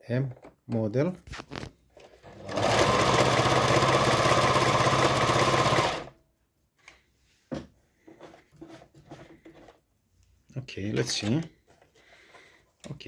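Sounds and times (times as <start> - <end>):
sewing machine stitching: 2.0 - 6.2.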